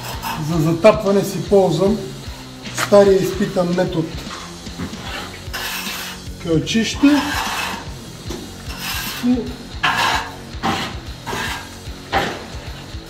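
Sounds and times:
background music with steady beat: 0.0s - 13.0s
hemp fibres rubbing: 7.1s - 13.0s.

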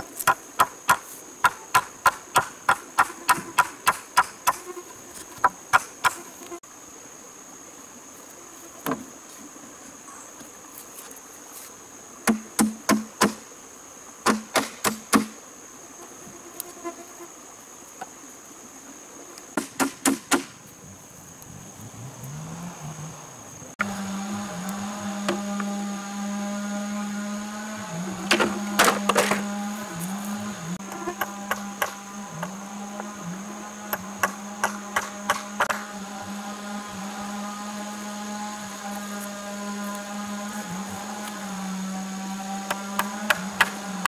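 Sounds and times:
high insect buzz: 0.0s - 44.0s
tool knocking on bamboo post: 12.3s - 13.4s.

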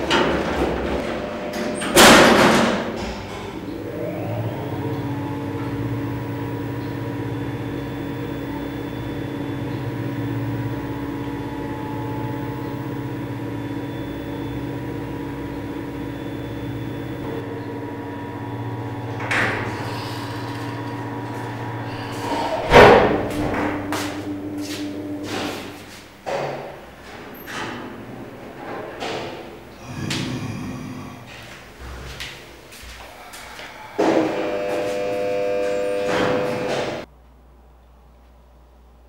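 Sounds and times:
humming drone of held tones: 3.5s - 26.1s, 33.0s - 37.1s.

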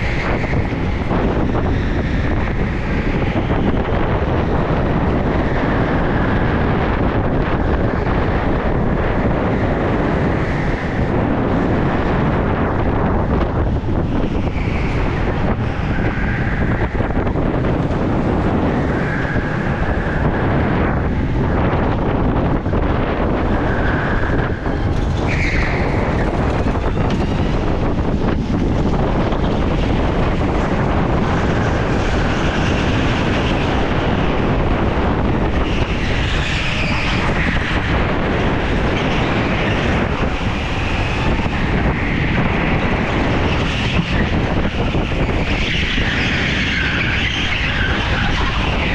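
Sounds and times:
go-kart engine racing: 0.0s - 48.9s
wind noise on microphone: 0.0s - 48.9s
tyre squeals: 23.5s - 27.6s, 35.6s - 48.9s.

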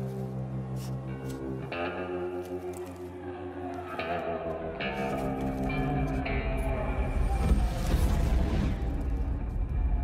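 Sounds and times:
documentary background music: 0.0s - 10.0s.

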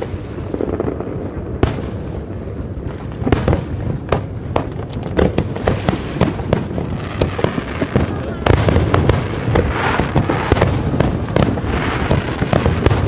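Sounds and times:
low rumble of booms: 0.0s - 13.0s.

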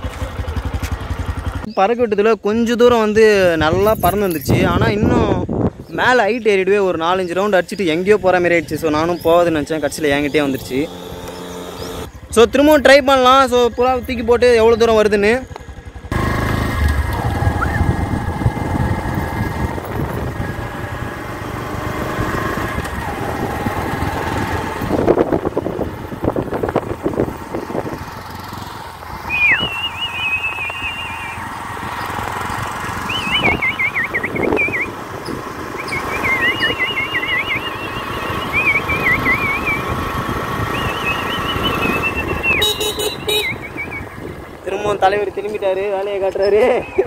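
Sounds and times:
motorbike engine: 0.0s - 1.7s, 8.9s - 47.0s
high warbling whistle: 17.5s - 18.0s, 29.3s - 31.5s, 33.1s - 34.9s, 35.8s - 39.9s, 40.7s - 42.7s.

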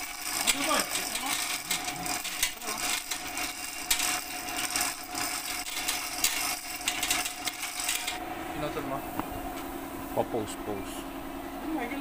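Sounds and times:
chain hoist links rattling: 0.0s - 8.2s.

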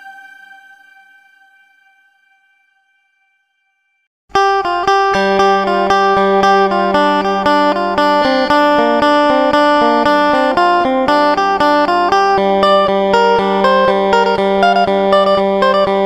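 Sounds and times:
held drone note: 0.0s - 3.0s
plucked string melody: 4.3s - 16.0s.

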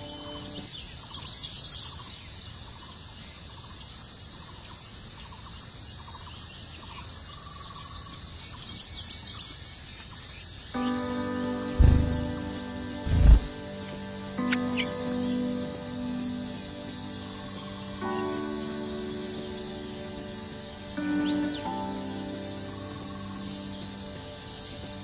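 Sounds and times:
birds chirping: 0.0s - 25.0s
high insect trill: 0.0s - 25.0s
faint short repeating notes: 10.8s - 23.4s.

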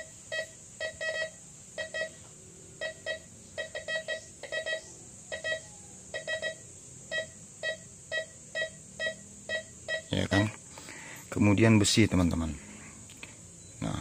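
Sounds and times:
metal detector beeping: 0.0s - 10.4s.

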